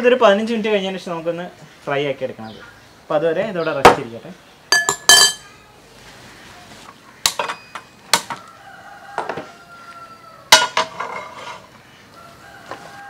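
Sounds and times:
chickens calling faintly: 5.4 - 13.0.

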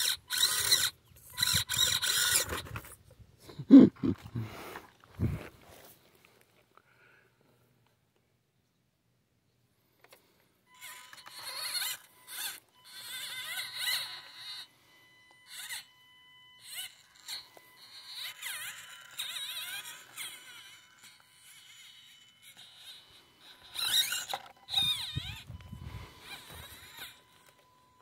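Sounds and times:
toy truck motor whining: 0.0 - 3.1, 10.0 - 28.0.

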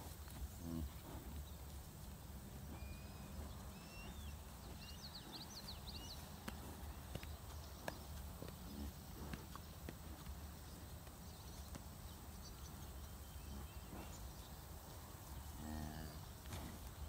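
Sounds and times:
small birds chirping and whistling: 2.7 - 8.0.

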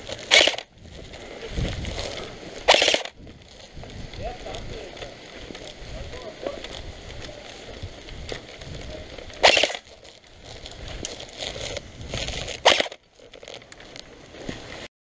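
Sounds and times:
rustling through grass: 0.0 - 14.9
airsoft gun rapid fire: 0.3 - 0.6, 2.7 - 3.2, 9.4 - 9.9, 12.6 - 13.0.

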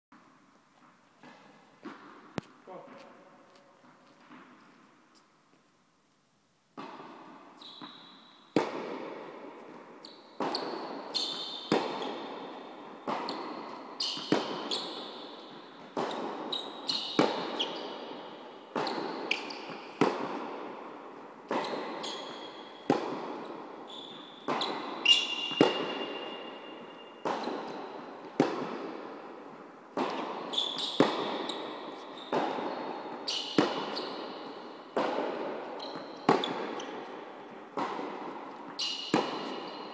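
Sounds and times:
tennis balls struck by rackets: 0.1 - 3.2, 6.7 - 39.9
shoes squeaking on court: 7.5 - 8.6, 9.6 - 39.9.

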